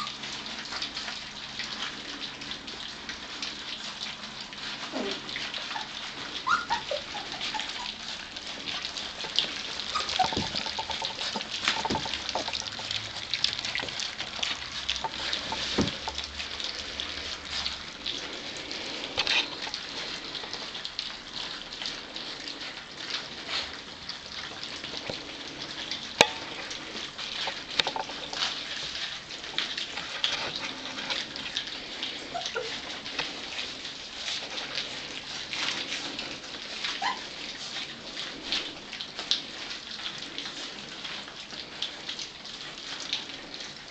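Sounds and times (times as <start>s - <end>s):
puppies lapping food: 0.0s - 43.9s
puppy squeaks: 4.9s - 8.1s, 9.8s - 10.6s, 32.3s - 32.8s, 36.8s - 37.3s.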